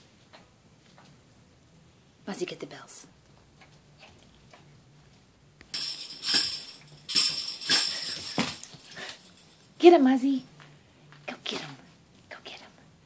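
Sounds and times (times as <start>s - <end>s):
small bells jingling: 5.7s - 10.1s.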